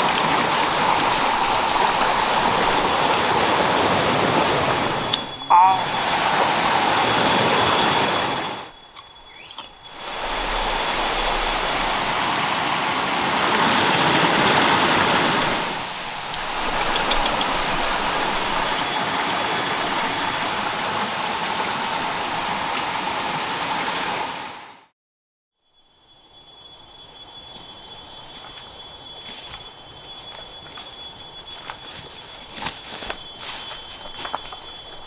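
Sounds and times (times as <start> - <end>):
water rushing: 0.0 - 8.8, 9.8 - 24.9.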